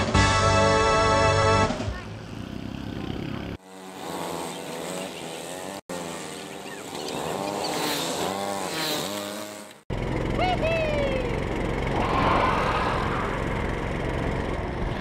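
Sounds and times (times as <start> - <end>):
go-kart engines idling: 1.6 - 11.9, 13.0 - 15.0.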